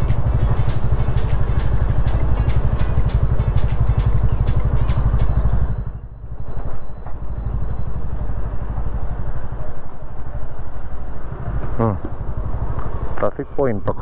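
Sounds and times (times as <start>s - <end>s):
motorcycle engine running: 0.0s - 13.4s.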